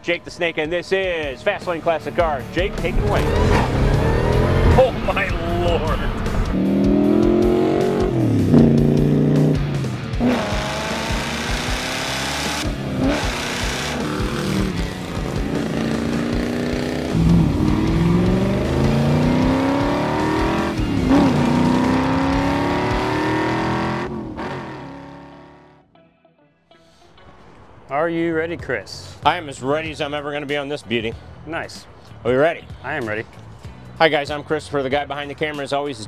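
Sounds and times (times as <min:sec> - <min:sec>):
car engine accelerating: 0:02.5 - 0:25.8.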